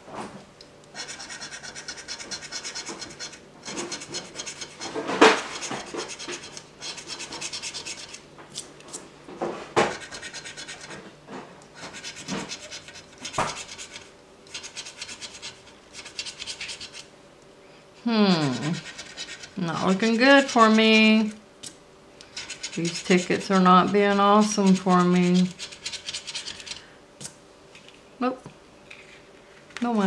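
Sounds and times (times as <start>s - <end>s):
coin scratching ticket: 1.0s - 8.2s, 9.9s - 11.0s, 11.9s - 17.0s, 18.4s - 20.8s, 22.3s - 23.4s, 24.6s - 26.8s.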